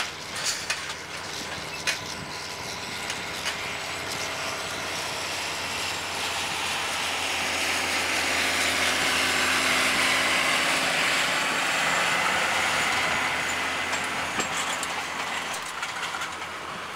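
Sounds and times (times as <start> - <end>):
cultivator rattling and clinking: 0.0 - 7.6, 11.9 - 16.9
road noise: 0.0 - 16.9
tractor diesel engine: 0.0 - 16.9.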